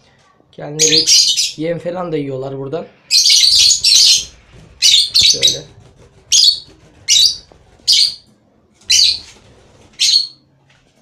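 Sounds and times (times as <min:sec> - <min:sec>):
lovebird calling: 0:00.8 - 0:01.6, 0:03.1 - 0:05.7, 0:06.3 - 0:08.3, 0:08.9 - 0:09.3, 0:10.0 - 0:10.4.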